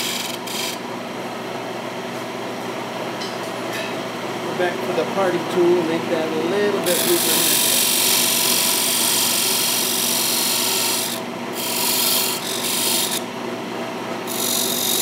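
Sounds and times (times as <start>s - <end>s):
tool scraping spinning wood: 0.0s - 0.8s, 4.6s - 13.3s, 14.3s - 15.0s
wood lathe humming: 0.0s - 0.8s, 4.5s - 13.3s, 14.1s - 15.0s.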